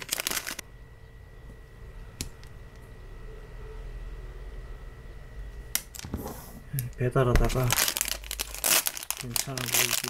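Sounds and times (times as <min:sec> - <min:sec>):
packaging crinkling: 0:00.0 - 0:00.6, 0:07.4 - 0:10.0
low room hum: 0:00.0 - 0:10.0.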